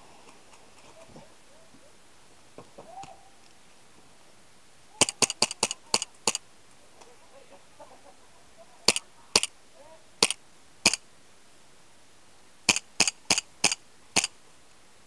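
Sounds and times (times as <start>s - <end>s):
airsoft guns firing: 5.0s - 6.4s, 8.9s - 9.5s, 10.2s - 11.0s, 12.7s - 14.3s.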